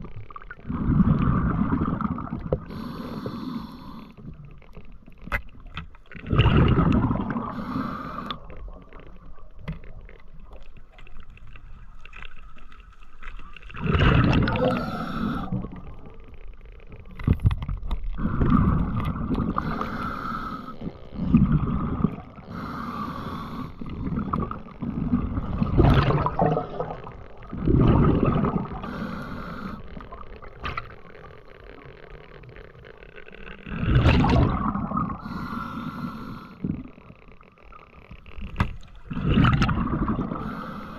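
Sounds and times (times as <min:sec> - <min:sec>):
low murky underwater background: 0:00.0 - 0:40.9
diver breathing underwater: 0:00.7 - 0:04.3, 0:06.4 - 0:08.6, 0:13.8 - 0:15.9, 0:18.2 - 0:26.6, 0:27.6 - 0:30.2, 0:33.7 - 0:36.9, 0:39.1 - 0:40.9.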